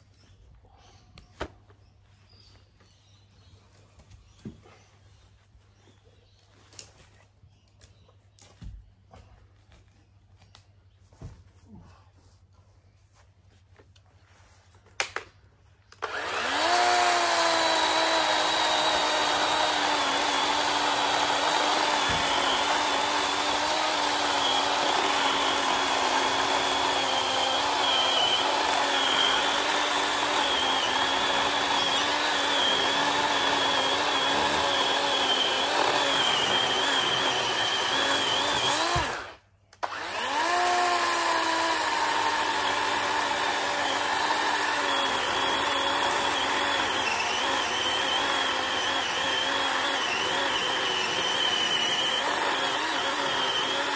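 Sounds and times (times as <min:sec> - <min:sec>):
chainsaw cutting log: 0:16.0 - 0:53.9.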